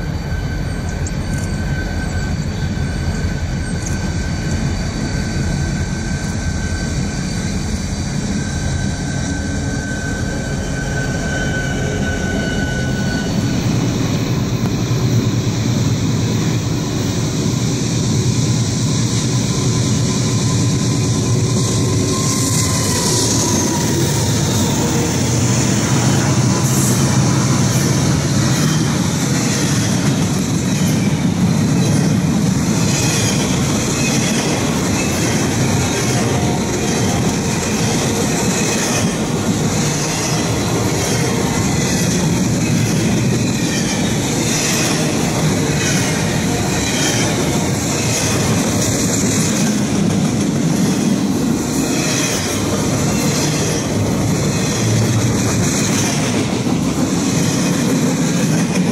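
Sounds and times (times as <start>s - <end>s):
thin steady whine: 0.0s - 32.7s
diesel locomotives passing: 0.0s - 58.9s
train wheels rumbling on rail: 0.0s - 58.9s.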